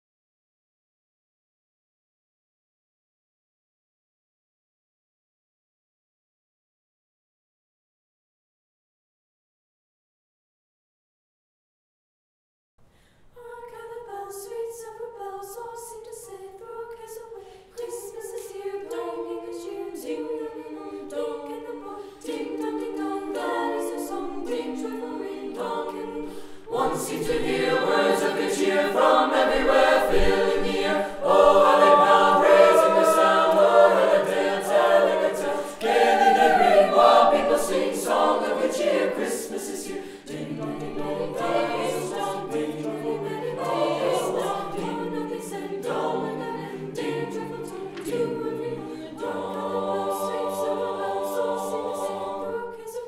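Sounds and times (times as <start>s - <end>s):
vocal ensemble singing in harmony: 13.2s - 53.0s.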